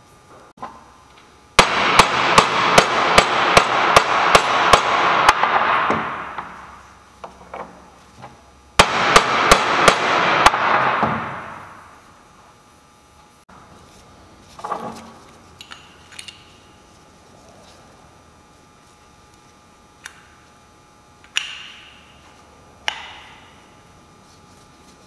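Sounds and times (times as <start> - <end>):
hammer striking metal: 1.6 - 6.6, 8.8 - 11.8.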